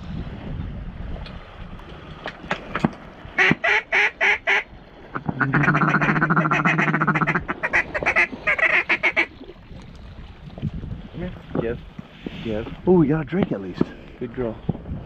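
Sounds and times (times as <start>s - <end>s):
duck quacking: 3.4s - 9.3s.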